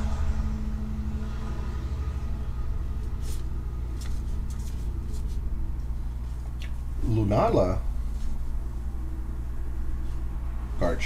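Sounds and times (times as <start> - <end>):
low hum: 0.0 - 11.0.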